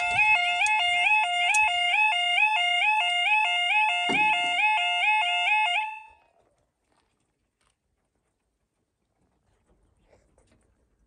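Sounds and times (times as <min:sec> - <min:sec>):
level crossing alarm two-pitch yodel: 0:00.0 - 0:06.2
dull thump: 0:04.1 - 0:04.5.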